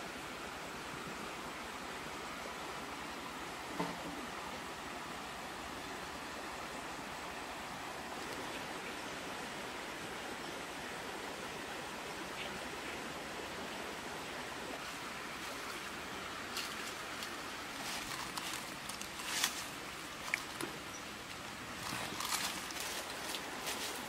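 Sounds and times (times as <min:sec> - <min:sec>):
stream rushing: 0:00.0 - 0:24.0
dry leaves rustling: 0:15.3 - 0:24.0.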